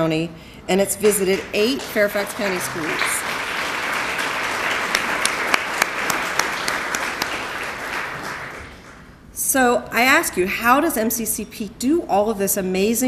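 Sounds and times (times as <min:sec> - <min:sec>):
audience applauding: 0:01.0 - 0:09.0.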